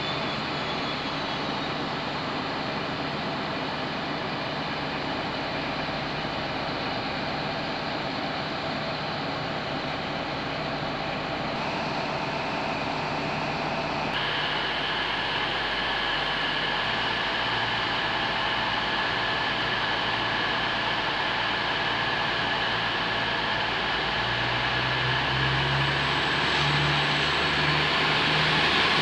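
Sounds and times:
diesel train engine idling: 0.0s - 29.0s.

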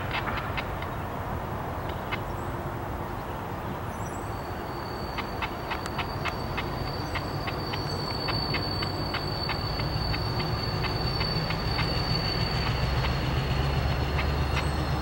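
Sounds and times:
wheels clicking over rail joints: 0.0s - 2.3s, 4.8s - 15.0s
locomotive engine rumble: 0.0s - 15.0s
high wheel squeal: 4.3s - 15.0s.

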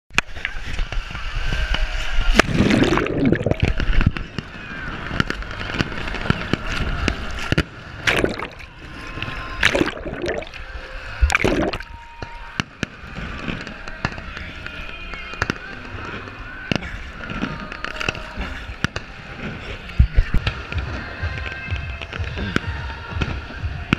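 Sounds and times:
water sloshing and splashing: 2.4s - 4.0s, 8.0s - 12.0s.

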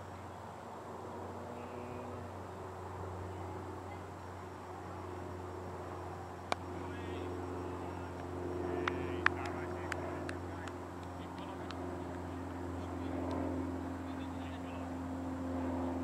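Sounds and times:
distant players' voices: 0.0s - 16.0s
steady low hum: 0.0s - 16.0s
people clapping: 8.1s - 12.2s.

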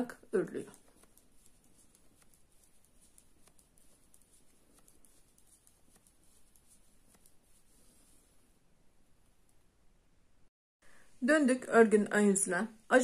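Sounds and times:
knitting needles clicking: 0.5s - 7.5s.

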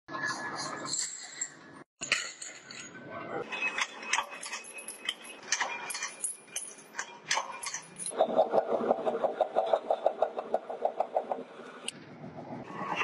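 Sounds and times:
metal parts clinking: 0.9s - 8.2s.

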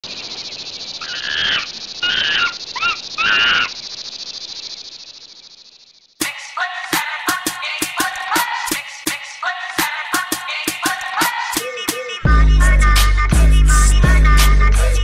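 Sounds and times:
monkey calls: 1.0s - 4.0s
beat-driven music: 6.2s - 15.0s.

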